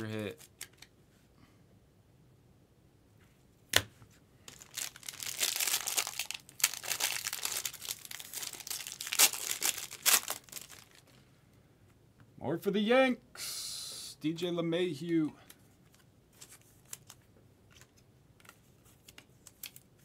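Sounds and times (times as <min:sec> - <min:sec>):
plastic wrapper tearing and crinkling: 0:04.5 - 0:11.2.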